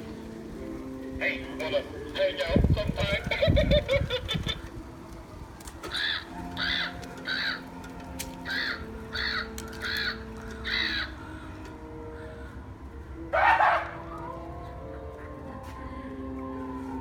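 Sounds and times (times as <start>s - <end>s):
crow cawing: 5.9s - 7.8s, 8.4s - 12.6s.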